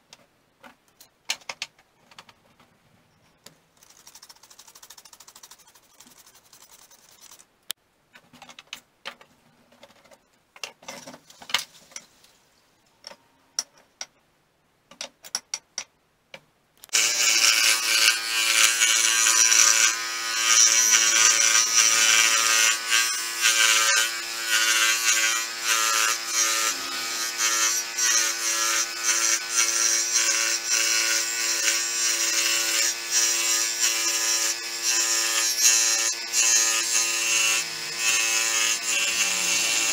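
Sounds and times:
electric power tool running: 16.9 - 33.2.

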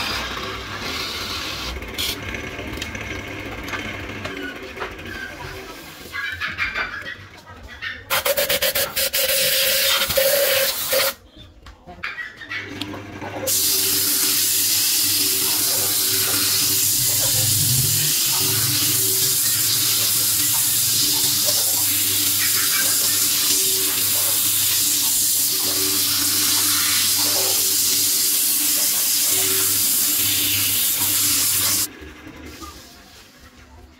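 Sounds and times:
turning tool scraping chatter: 0.0 - 3.1, 3.7 - 11.3, 11.9 - 33.9
sandpaper hissing on spinning wood: 8.1 - 11.2, 13.5 - 31.9
lathe motor hum: 13.5 - 32.4.

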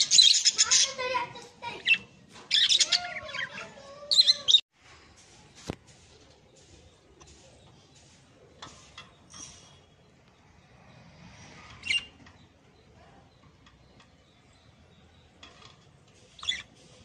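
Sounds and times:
parrot chicks chirping: 0.0 - 4.6, 11.8 - 17.0.

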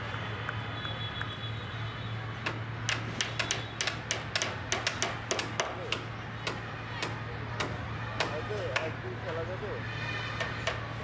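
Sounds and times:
sharp irregular taps: 2.4 - 8.9.

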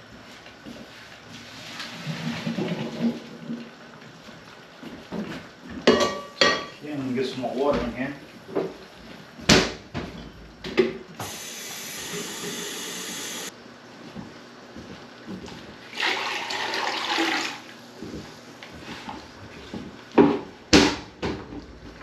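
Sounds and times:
tap water running: 11.2 - 13.5, 15.9 - 17.8.

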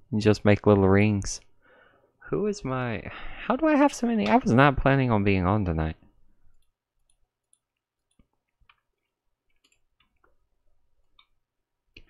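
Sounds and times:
computer mouse clicks: 6.5 - 10.4.

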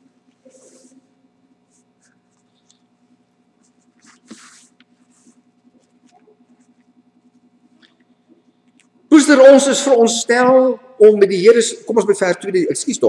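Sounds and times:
faint steady hum: 0.0 - 13.0
paper rustling: 3.7 - 6.8.

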